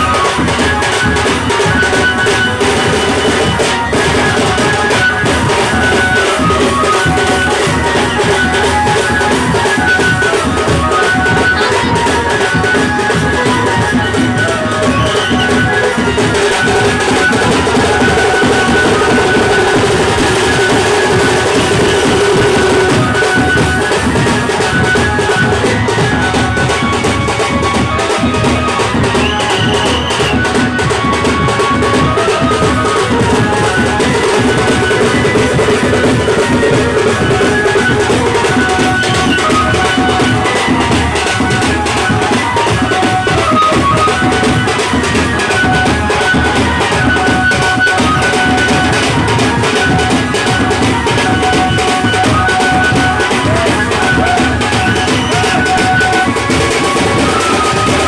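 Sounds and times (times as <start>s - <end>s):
high melody line: 0.0s - 58.0s
large drums beaten: 0.0s - 58.0s
bass drums beaten fast: 15.6s - 26.4s
high steady tone: 16.1s - 24.6s.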